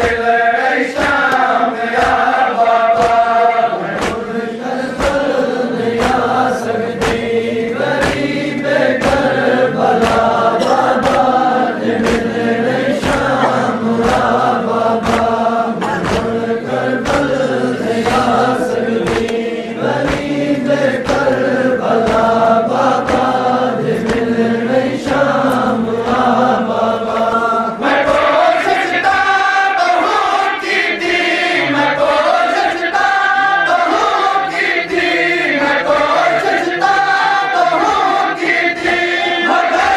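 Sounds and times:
men chanting a lament: 0.0 - 39.9
chest-beating slaps: 1.0 - 26.4.

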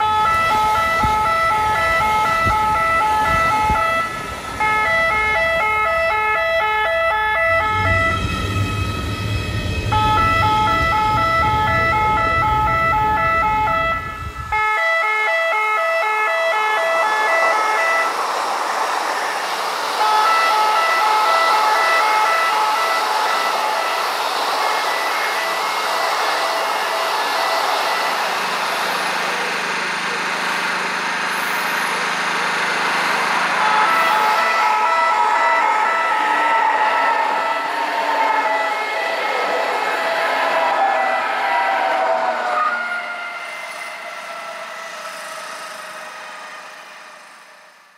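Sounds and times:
passing trains rumbling: 0.0 - 47.9
pulsing multi-tone warning horns: 0.0 - 47.9
heavy low rumble: 7.5 - 14.6.

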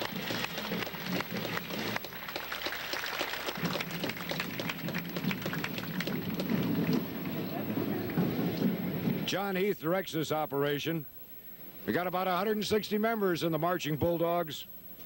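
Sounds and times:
crowd applauding: 0.0 - 9.3.

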